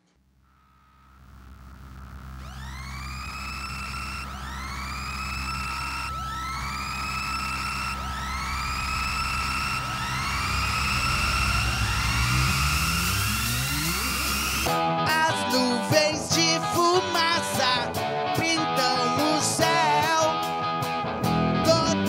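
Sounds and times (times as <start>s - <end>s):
low drone: 1.0s - 14.8s
rising electronic swoop: 2.2s - 14.7s.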